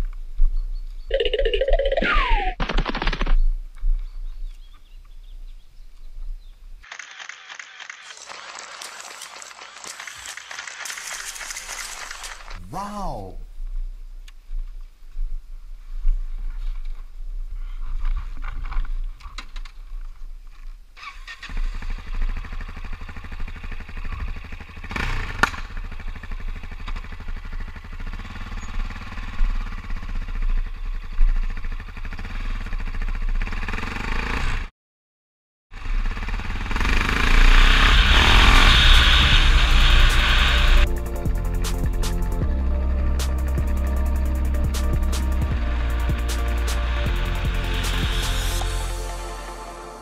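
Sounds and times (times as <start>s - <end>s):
motorcycle engine running: 21.5s - 34.7s, 35.8s - 49.2s
hiss: 37.1s - 40.8s.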